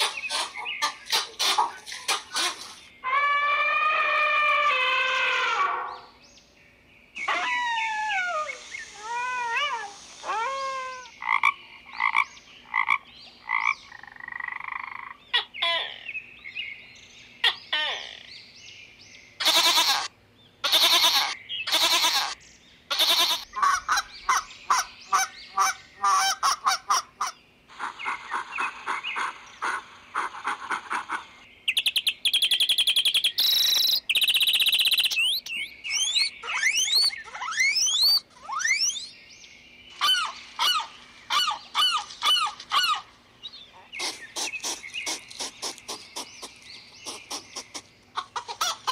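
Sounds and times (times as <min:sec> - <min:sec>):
loud pitched animal calls: 0:00.0 - 0:06.2, 0:07.2 - 0:12.2, 0:19.4 - 0:31.3, 0:35.9 - 0:39.1, 0:39.9 - 0:43.1
frogs croaking: 0:11.1 - 0:16.2
rising and falling chirps: 0:33.3 - 0:39.2.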